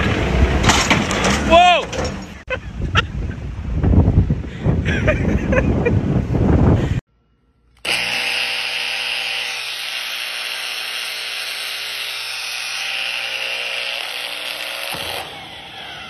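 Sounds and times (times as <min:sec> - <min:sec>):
angle grinder motor whine: 0:07.8 - 0:16.0.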